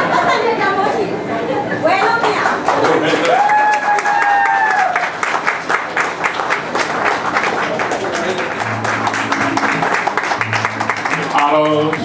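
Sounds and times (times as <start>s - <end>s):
audience applauding: 2.0s - 12.0s
person cheering: 3.2s - 5.1s.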